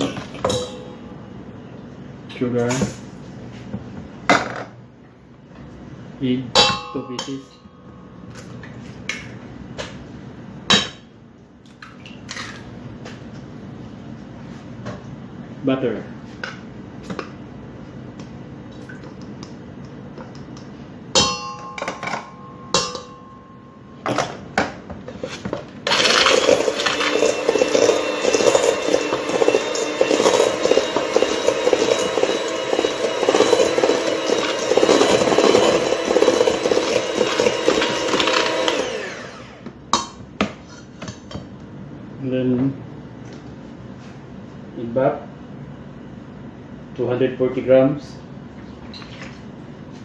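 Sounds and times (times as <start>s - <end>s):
knocks and clinks against bowl: 21.2s - 23.4s
electric hand mixer beating: 25.9s - 39.6s.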